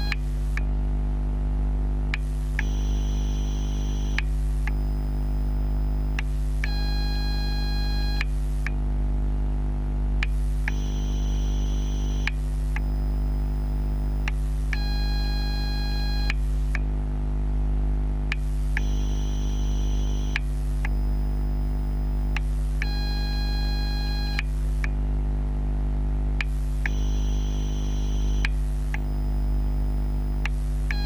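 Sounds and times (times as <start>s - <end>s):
battery charger electrical hum: 0.0s - 31.0s
faint click: 4.1s - 4.8s, 12.2s - 13.0s, 18.3s - 18.9s, 20.2s - 21.0s, 26.4s - 27.0s, 30.4s - 31.0s.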